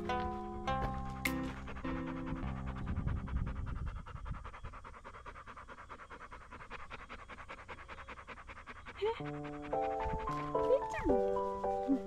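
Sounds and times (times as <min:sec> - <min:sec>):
soft background music: 0:00.0 - 0:03.6, 0:07.6 - 0:12.0
dog panting rapidly: 0:00.0 - 0:12.0.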